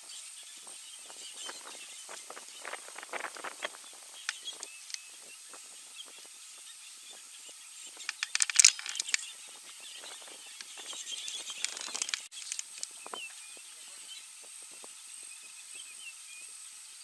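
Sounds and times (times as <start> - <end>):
dry brush crackling: 0.0 - 15.9
faint bird calls: 0.0 - 16.8
twigs snapping: 8.0 - 9.3, 10.0 - 13.2.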